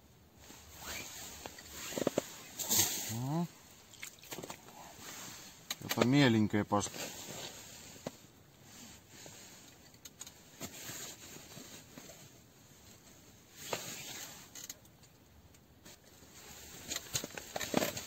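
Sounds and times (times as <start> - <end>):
faint rustling: 0.3 - 14.8.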